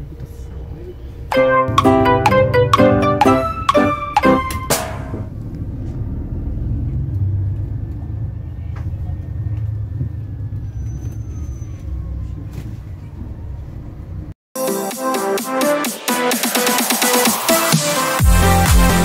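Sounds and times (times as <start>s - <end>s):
bus engine and road rumble: 0.0s - 1.3s, 5.1s - 14.4s.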